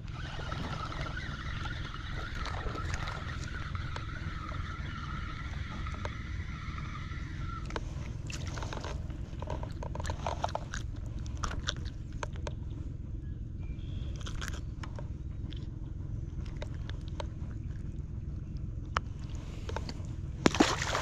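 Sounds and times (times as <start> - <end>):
fishing reel gears whirring: 0.0 - 10.6
steady low rumble: 0.0 - 21.0
clicks and scrapes: 7.6 - 12.6.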